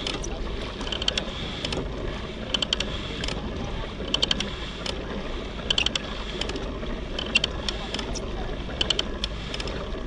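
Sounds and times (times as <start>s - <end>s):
water and wind wash: 0.0s - 10.0s
quick mechanical clicks: 4.1s - 5.0s, 5.7s - 6.6s, 7.2s - 8.2s, 8.8s - 9.8s.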